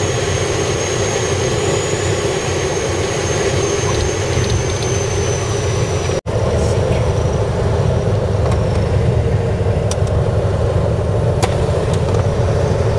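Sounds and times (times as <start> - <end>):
aircraft engine and propeller: 0.0 - 12.9.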